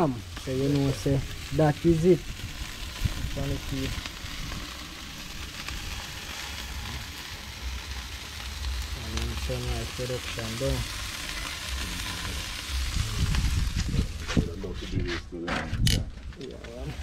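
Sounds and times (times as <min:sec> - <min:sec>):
chicken sizzling on a grill: 0:00.0 - 0:14.9, 0:16.4 - 0:17.0.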